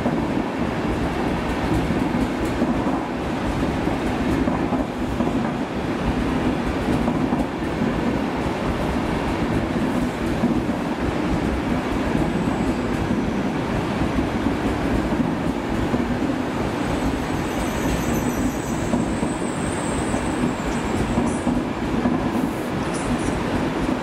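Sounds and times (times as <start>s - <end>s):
train wheels rumbling on rails: 0.0s - 24.0s
high wheel squeal: 16.8s - 21.4s.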